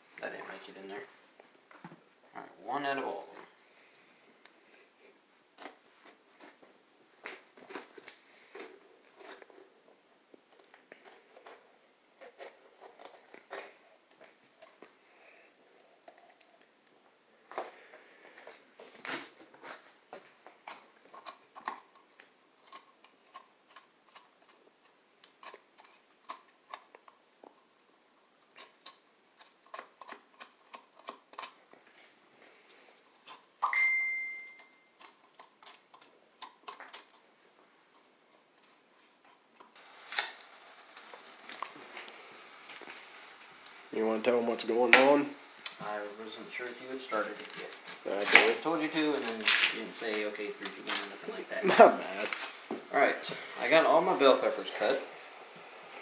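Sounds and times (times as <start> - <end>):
knife cutting peppers: 22.6 - 27.0, 28.6 - 31.6, 47.1 - 51.2
brief high-pitched tone: 33.6 - 34.9.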